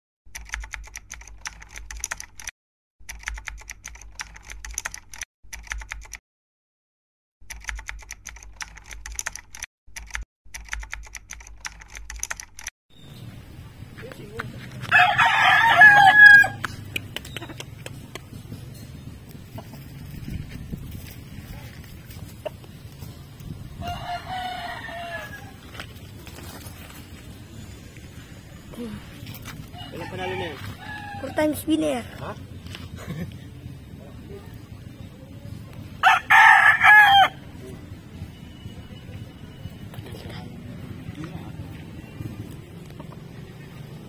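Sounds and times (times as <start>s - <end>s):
keyboard typing clicks: 0.3s - 6.2s, 7.4s - 12.7s
rooster crowing: 14.8s - 16.7s, 23.8s - 25.8s, 29.6s - 31.6s, 36.0s - 37.5s.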